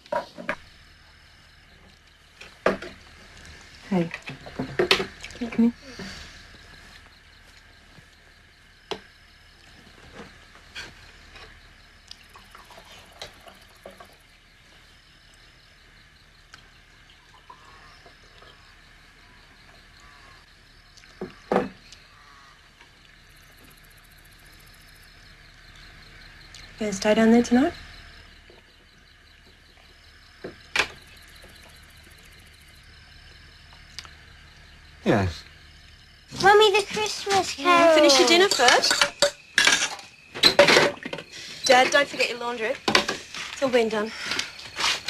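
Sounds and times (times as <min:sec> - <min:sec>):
cutlery and plates clinking: 0:38.1 - 0:41.0.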